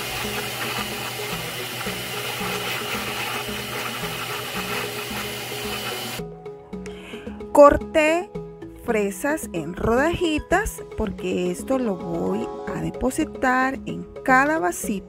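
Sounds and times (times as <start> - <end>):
blender running: 0.0 - 6.2.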